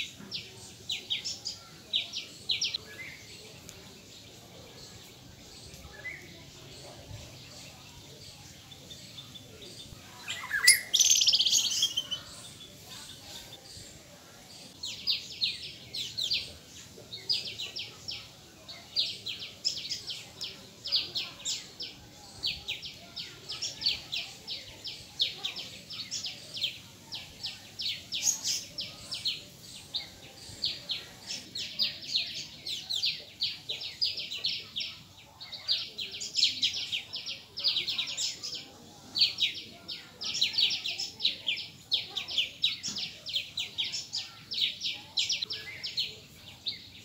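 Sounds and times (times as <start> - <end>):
high bird-like chirps: 10.2 - 13.2.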